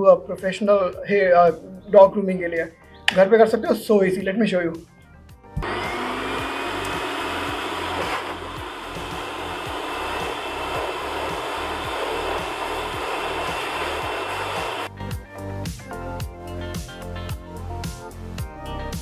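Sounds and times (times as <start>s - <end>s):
dog dryer blowing air: 5.6s - 14.9s.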